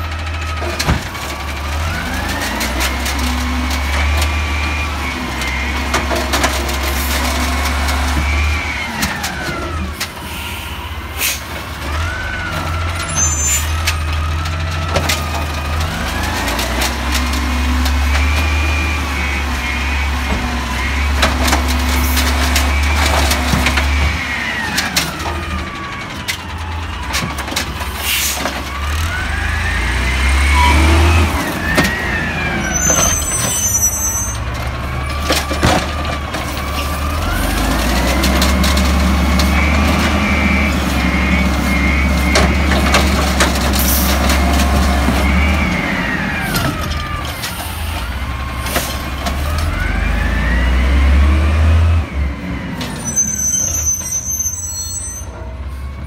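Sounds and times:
garbage truck engine revving: 0.0s - 54.5s
truck pulling away: 0.0s - 56.0s
hydraulic arm and cart clanking: 11.2s - 55.8s.

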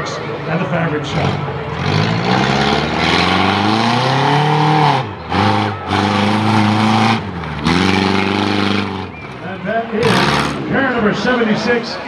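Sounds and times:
car engine revving hard: 1.1s - 9.4s, 10.0s - 10.7s.

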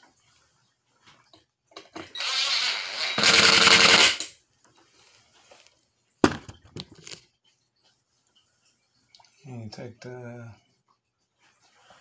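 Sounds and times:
cordless drill driving screw: 2.0s - 4.3s.

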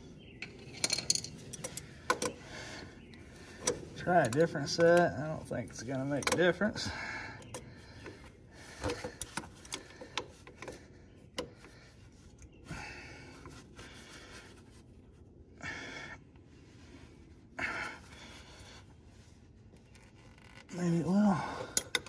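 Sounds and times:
breaths of effort: 6.8s - 12.0s, 12.6s - 14.5s, 15.6s - 16.3s, 17.5s - 18.9s, 21.2s - 22.0s.

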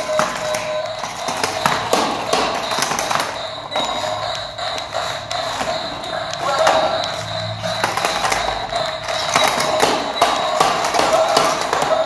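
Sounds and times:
plastic toy cars clattering on tiles: 0.0s - 4.2s, 6.6s - 12.0s
toy car motors whining: 0.0s - 12.0s.

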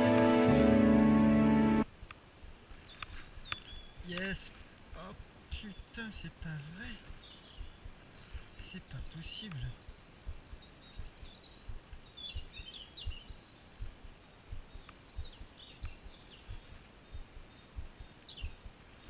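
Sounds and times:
songbirds chirping and singing: 0.0s - 1.8s, 2.8s - 19.0s
soft low knocks on microphone: 7.0s - 8.6s, 9.6s - 19.0s.

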